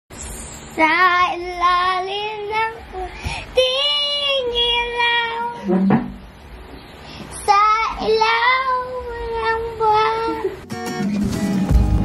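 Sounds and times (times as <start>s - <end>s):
child singing long notes: 0.8s - 5.7s, 7.4s - 10.6s.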